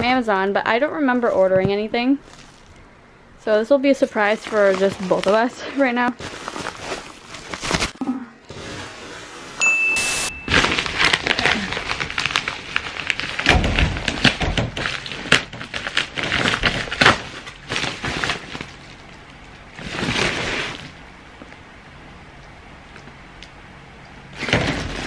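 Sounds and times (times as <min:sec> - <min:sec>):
paper mailer crinkling and tearing: 0:04.0 - 0:09.1, 0:10.5 - 0:21.0.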